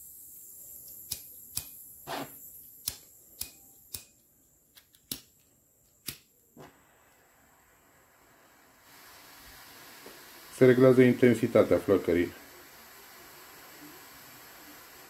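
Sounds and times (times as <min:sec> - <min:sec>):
faint high hiss: 0:00.0 - 0:15.0
soldering iron control clicks: 0:00.8 - 0:04.2.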